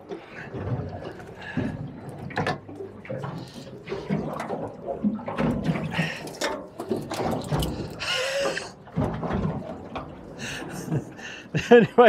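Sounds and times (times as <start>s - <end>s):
water splashing against boat hull: 0.0s - 12.0s
knocks and clatter: 0.1s - 8.0s, 8.9s - 10.6s.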